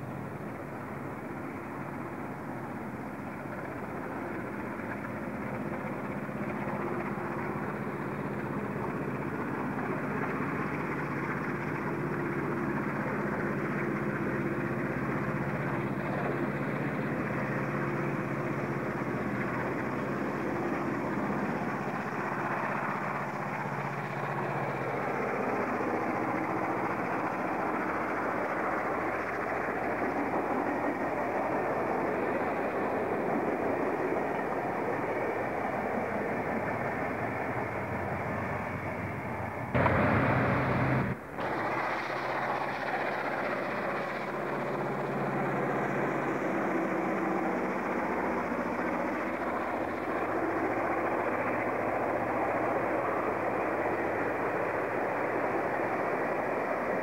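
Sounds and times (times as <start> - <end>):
electric train passing: 0.0 - 57.0
low hums: 33.2 - 46.4.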